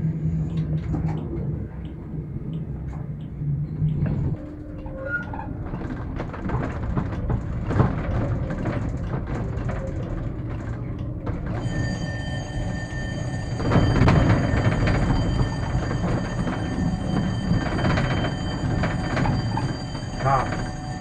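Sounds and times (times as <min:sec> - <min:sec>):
tram rumbling over track: 0:00.0 - 0:21.0
wheels clicking over rail joints: 0:03.9 - 0:21.0
high multi-tone whine: 0:10.5 - 0:21.0.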